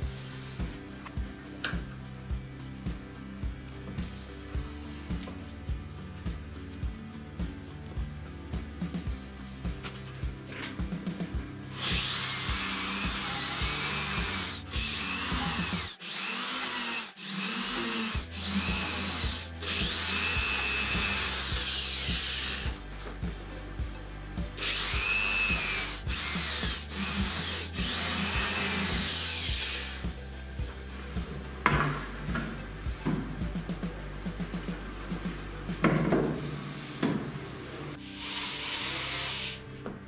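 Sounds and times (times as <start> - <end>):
electric drill boring into wood: 11.7 - 22.8, 24.6 - 30.3, 38.0 - 39.6.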